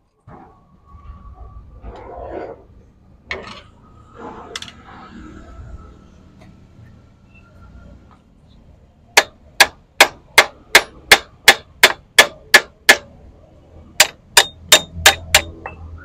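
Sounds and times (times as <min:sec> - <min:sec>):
hammer clanging on metal gears: 0:14.0 - 0:15.8.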